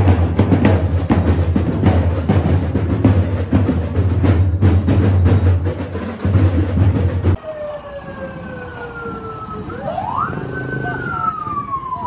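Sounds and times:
loud drumming: 0.0s - 7.4s
siren wailing: 7.4s - 12.0s.

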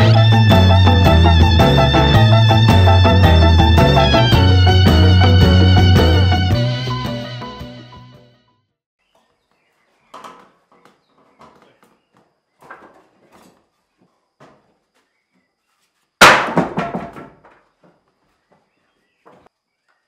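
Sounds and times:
boards clattering onto wooden floor: 16.2s - 18.0s
wooden planks knocking: 16.2s - 18.0s.

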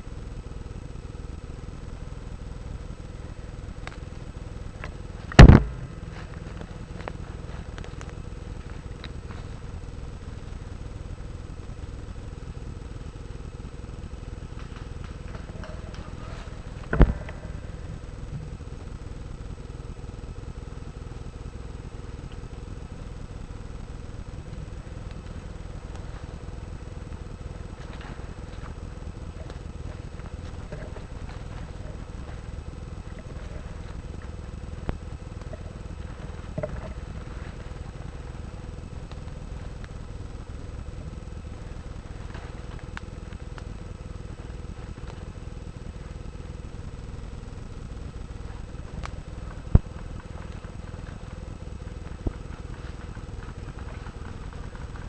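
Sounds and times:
camera handling rumble: 3.6s - 10.0s, 24.3s - 43.8s
airsoft rifle crack: 4.8s - 9.4s.

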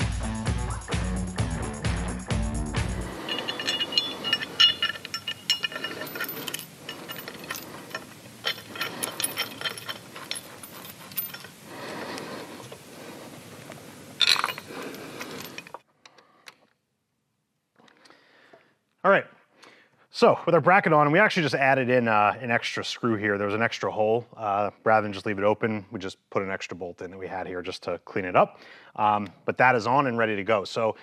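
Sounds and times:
metal tool clinks and clicks: 3.0s - 11.7s, 14.2s - 15.8s.

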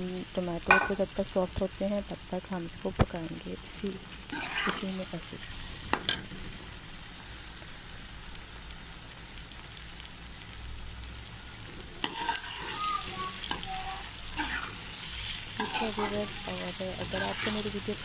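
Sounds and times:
vegetables sizzling in hot oil: 0.0s - 18.0s
spoon scraping against pot: 12.0s - 12.8s, 14.4s - 16.4s.

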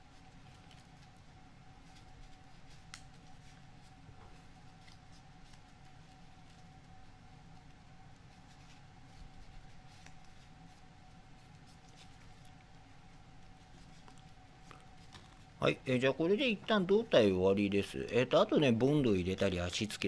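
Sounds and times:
faint steady hum: 0.0s - 20.0s
paper rustling and clicking: 0.3s - 12.6s.

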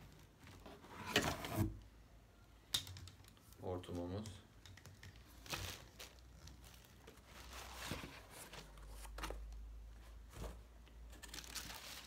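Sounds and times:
plastic packaging crinkling: 5.0s - 8.0s.

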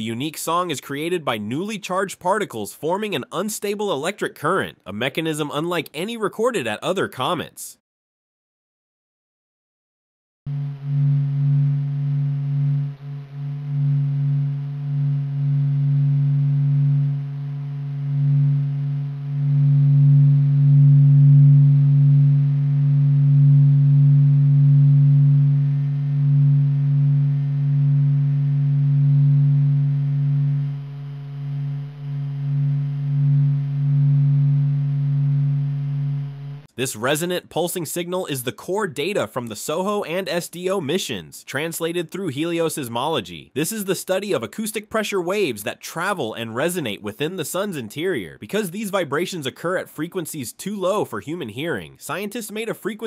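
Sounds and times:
low resonant pulsing hum: 10.5s - 36.7s.

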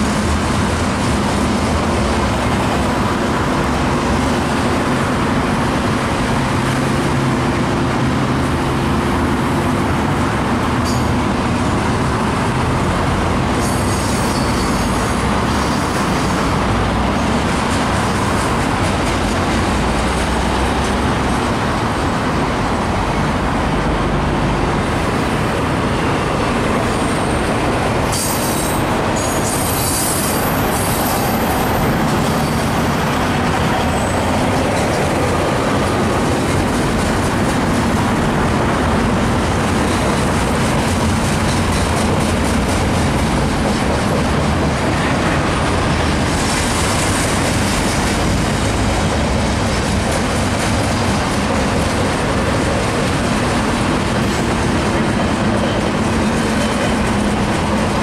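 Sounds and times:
train wheels rumbling on rail: 0.0s - 58.0s
high wheel squeal: 13.6s - 16.6s, 28.1s - 34.6s.

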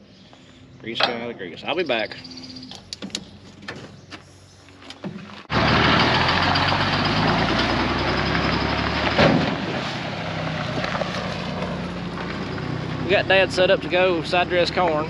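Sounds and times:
tyres on gravel: 0.3s - 15.0s
truck engine running: 5.3s - 15.0s.

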